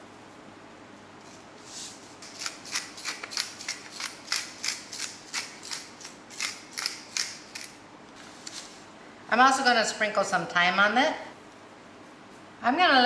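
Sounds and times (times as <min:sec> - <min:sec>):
pepper grinding rasps: 0:02.2 - 0:07.8.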